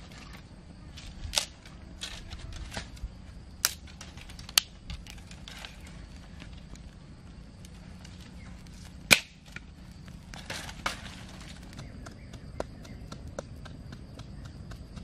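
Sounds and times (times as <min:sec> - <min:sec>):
sticks rustling: 0:00.0 - 0:11.8
twigs snapping: 0:01.0 - 0:03.0, 0:03.6 - 0:07.0, 0:07.6 - 0:12.2.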